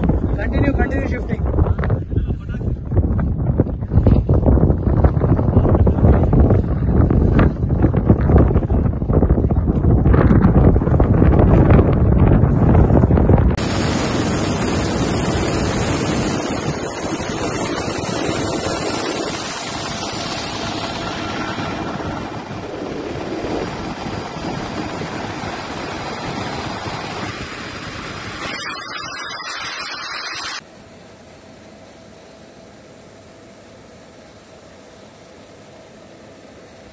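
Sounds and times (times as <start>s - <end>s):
wind blowing across microphone: 0.0s - 29.2s
helicopter in flight: 0.0s - 30.6s.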